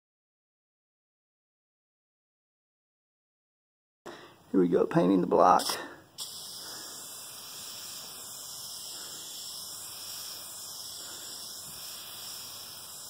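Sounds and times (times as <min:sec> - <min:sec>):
aerosol spray can hissing: 0:05.6 - 0:13.0.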